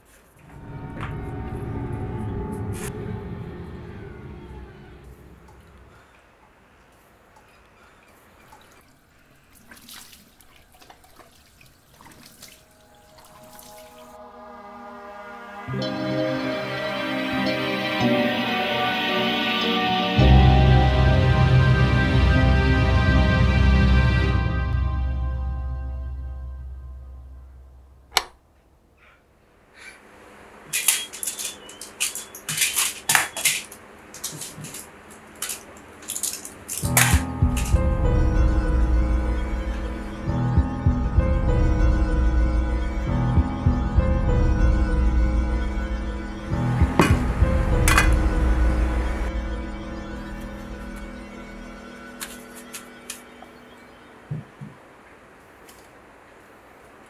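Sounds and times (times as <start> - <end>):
water splashing and dripping in sink: 8.4 - 14.2
foil blister pack crinkling: 30.7 - 37.8.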